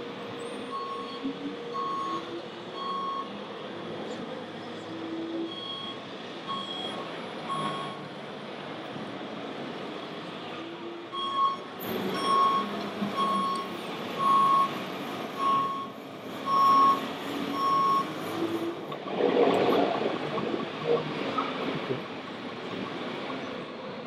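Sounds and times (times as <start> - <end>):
steady background noise: 0.0 - 24.0
high reversing beeps: 0.4 - 3.3, 5.5 - 8.0, 11.2 - 14.8, 15.4 - 18.3.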